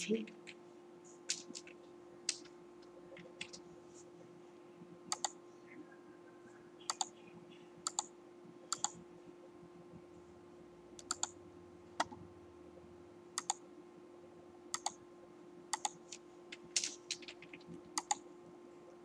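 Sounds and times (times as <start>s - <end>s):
faint steady hum: 0.0s - 19.0s
computer mouse clicks: 0.4s - 3.6s, 5.1s - 5.4s, 6.9s - 7.2s, 7.8s - 8.1s, 8.7s - 9.0s, 11.0s - 11.4s, 12.0s - 12.2s, 13.4s - 13.6s, 14.8s - 15.0s, 15.7s - 18.2s.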